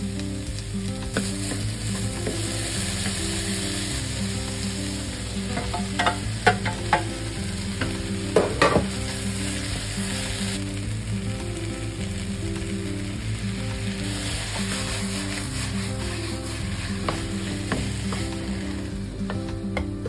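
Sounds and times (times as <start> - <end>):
vegetables sizzling in a frying pan: 0.0 - 19.4
utensil scraping a pan: 14.0 - 18.7.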